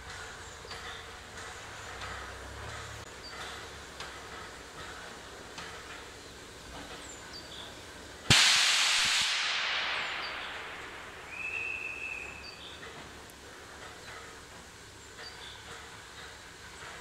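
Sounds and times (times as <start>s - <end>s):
steam locomotive releasing steam: 0.0s - 17.0s.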